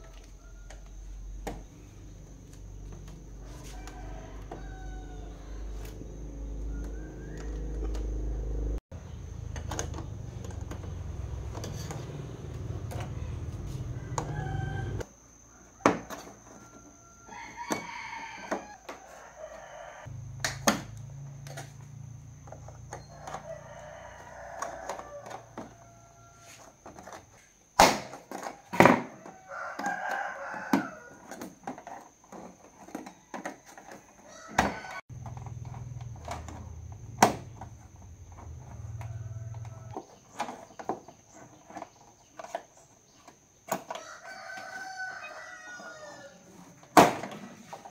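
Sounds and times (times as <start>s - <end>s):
rooster crowing: 0.0s - 1.4s, 2.7s - 8.8s, 10.9s - 20.4s, 22.7s - 26.8s, 28.5s - 31.4s, 33.2s - 35.2s, 36.5s - 40.3s, 43.9s - 47.9s.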